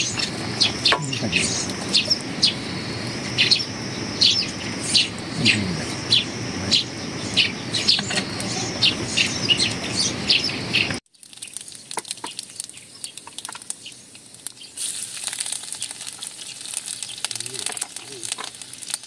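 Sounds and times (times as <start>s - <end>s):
birds chirping: 0.0s - 11.0s
oil sizzling in a wok: 11.1s - 19.0s.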